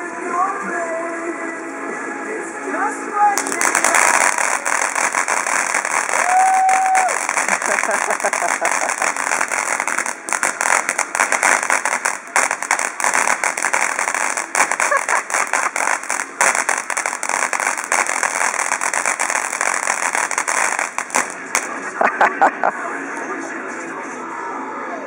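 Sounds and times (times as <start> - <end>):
firework hissing and crackling: 2.8 - 22.4.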